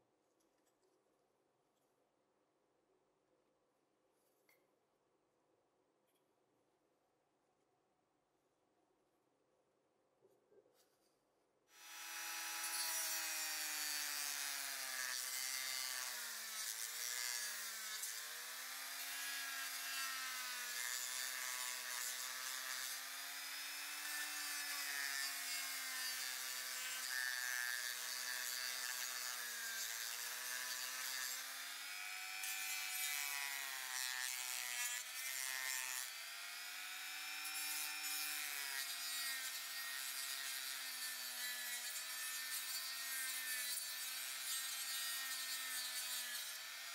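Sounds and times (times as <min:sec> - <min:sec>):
rotary tool grinding metal: 0:11.8 - 0:46.9.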